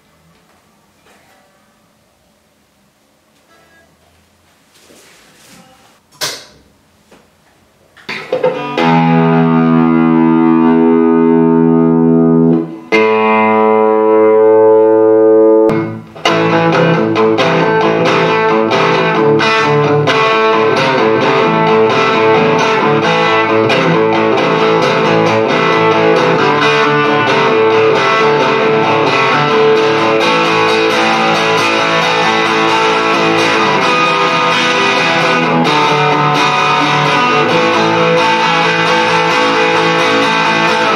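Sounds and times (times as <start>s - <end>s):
electric guitar chords and picked notes: 8.3s - 40.9s.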